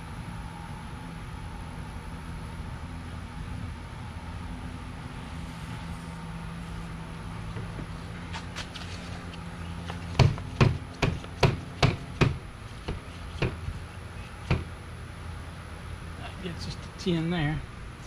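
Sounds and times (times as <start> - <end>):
low steady hum: 0.0 - 18.0
sharp knocks of hard object: 10.2 - 13.6, 14.4 - 14.7.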